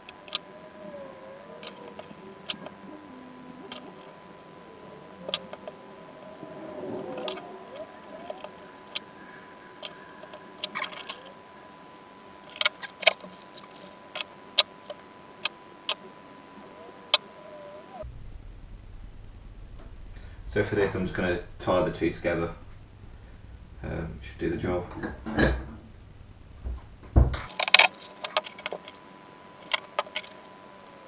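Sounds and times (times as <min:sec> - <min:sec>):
faint high whine: 0:00.0 - 0:31.0
small parts clicking and tapping: 0:27.4 - 0:29.0, 0:29.6 - 0:31.0.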